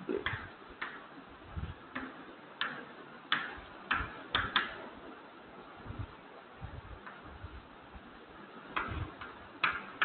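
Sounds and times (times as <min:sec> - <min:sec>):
chalk tapping on blackboard: 0:01.9 - 0:04.8, 0:08.7 - 0:10.0.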